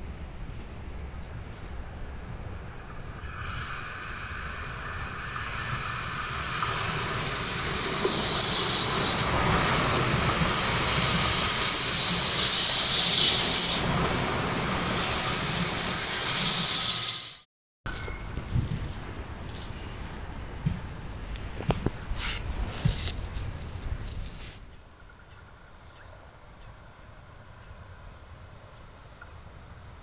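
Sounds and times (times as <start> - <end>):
train wheels rushing on rails: 2.5 - 17.4.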